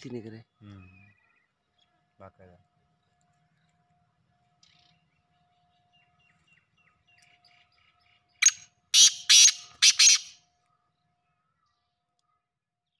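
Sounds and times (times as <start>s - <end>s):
harsh bird call: 8.4s - 10.4s.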